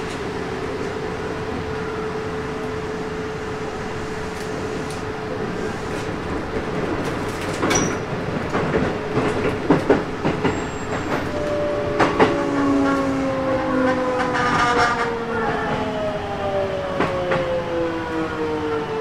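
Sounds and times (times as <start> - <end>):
electric train inverter whine: 0.0 - 7.4, 9.0 - 19.0
train wheels clacking over rail joints: 5.9 - 13.2.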